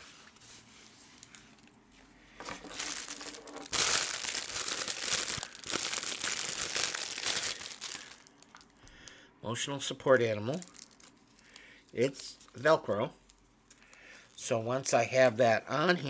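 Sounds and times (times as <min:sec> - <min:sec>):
packaging crinkling and rustling: 0:02.4 - 0:08.8, 0:10.4 - 0:11.6.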